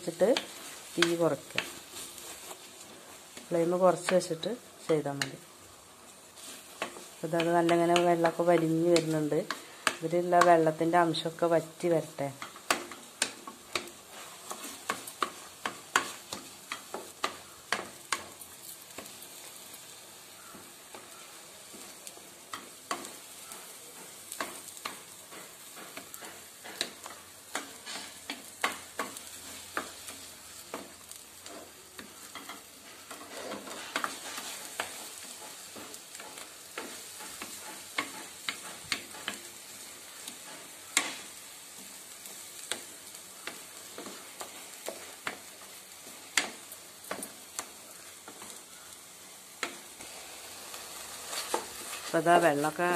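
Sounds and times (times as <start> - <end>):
steady sizzle: 0.0 - 52.9
wooden spatula scraping metal pot: 32.4 - 39.4.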